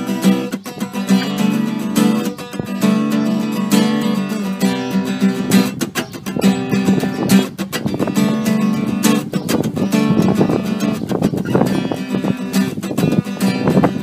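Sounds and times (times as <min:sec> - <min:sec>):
acoustic guitar playing: 0:00.0 - 0:14.0.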